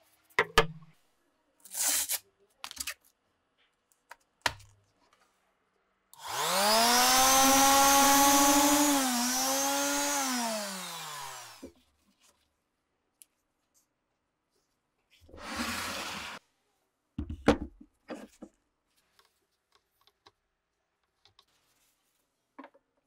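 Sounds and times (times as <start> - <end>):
orbital sander winding down: 6.2 - 11.6.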